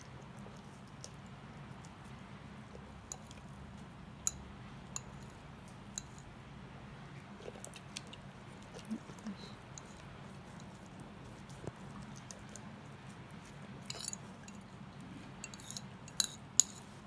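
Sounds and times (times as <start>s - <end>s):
faint low hum: 0.0s - 17.0s
dog chewing and smacking: 7.2s - 15.2s.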